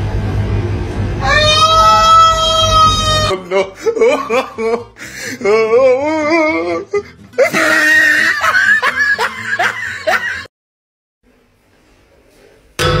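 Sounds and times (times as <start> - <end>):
teenagers laughing and shrieking: 7.4 - 10.5.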